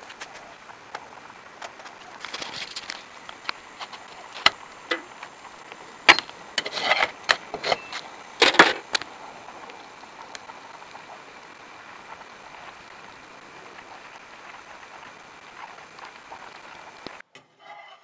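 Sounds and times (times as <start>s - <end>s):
metal spatula scraping frying pan: 6.1s - 8.8s, 17.4s - 18.0s.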